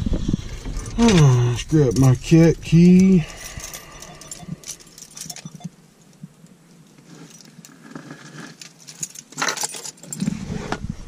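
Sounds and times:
keys jangling: 0:00.8 - 0:05.6, 0:08.6 - 0:10.2.

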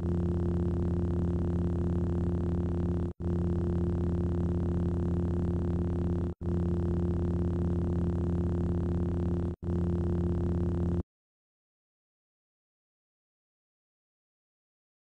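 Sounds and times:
lightsaber electric hum: 0:00.0 - 0:11.0.

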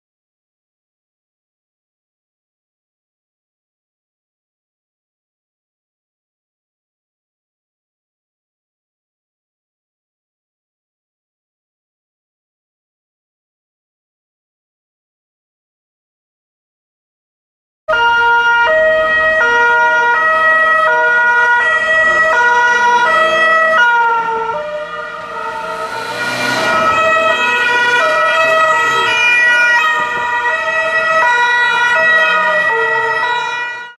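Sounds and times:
two-tone police sirens: 0:17.9 - 0:34.0
brief rushing noise: 0:25.3 - 0:29.0.

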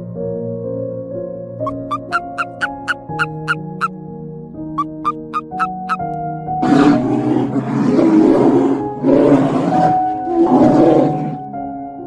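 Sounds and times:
background music: 0:00.0 - 0:12.0
large animal roaring: 0:06.6 - 0:11.4.

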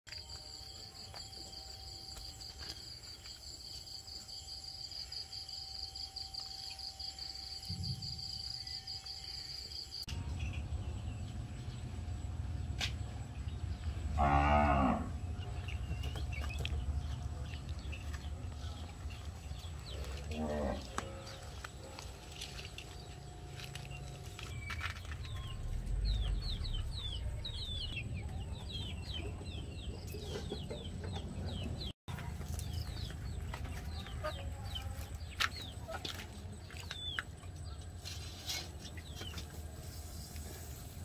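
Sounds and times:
low rumble: 0:10.1 - 0:14.2, 0:15.0 - 0:31.9
cow mooing: 0:14.2 - 0:15.2.

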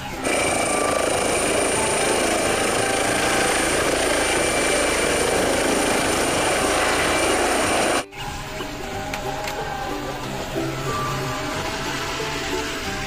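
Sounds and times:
helicopter rotor with high whine: 0:00.0 - 0:08.0.

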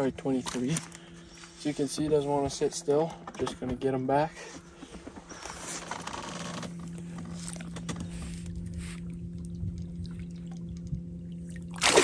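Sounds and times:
steady low hum: 0:00.0 - 0:12.0
water swishing: 0:08.6 - 0:12.0.

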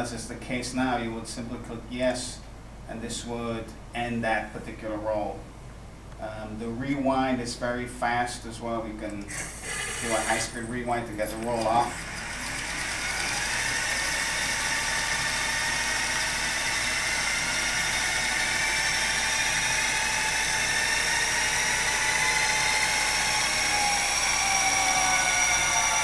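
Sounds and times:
scanner rewind whine: 0:08.9 - 0:26.0.

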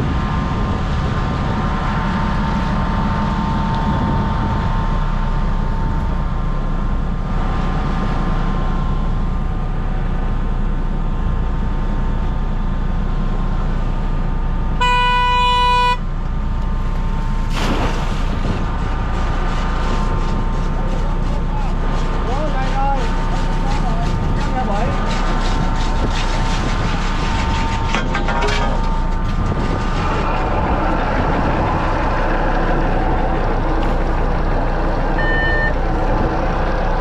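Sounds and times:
boat engine running: 0:00.0 - 0:37.0
water and hull noise: 0:13.9 - 0:37.0
loud horn tone: 0:14.8 - 0:16.1, 0:35.2 - 0:35.8.

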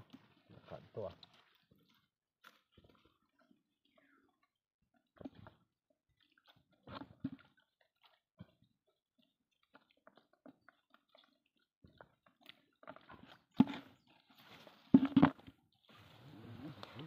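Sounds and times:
water dripping and splashing: 0:00.0 - 0:03.5.

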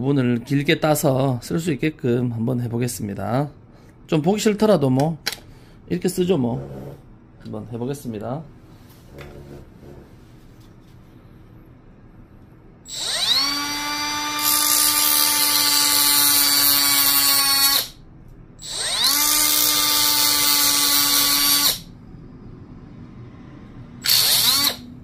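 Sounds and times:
rotary tool cutting plastic: 0:12.9 - 0:18.0, 0:24.0 - 0:24.9.

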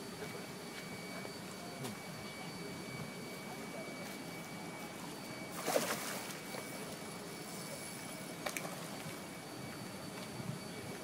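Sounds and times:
faint high whine: 0:00.0 - 0:11.0
low background hum: 0:00.0 - 0:11.0.

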